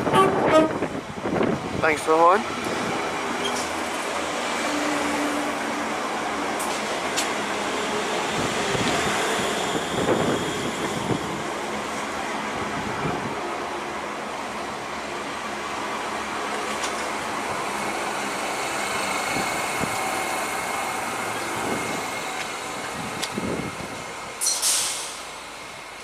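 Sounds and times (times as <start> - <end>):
short loud hiss: 24.4 - 25.2.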